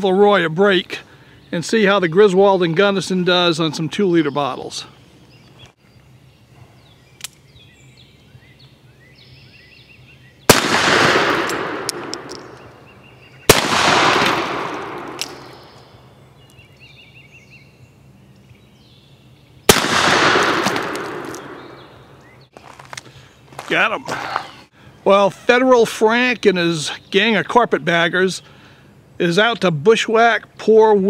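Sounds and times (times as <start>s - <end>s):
revolver shots with echo: 10.5s - 12.6s, 13.5s - 15.8s, 19.7s - 22.0s.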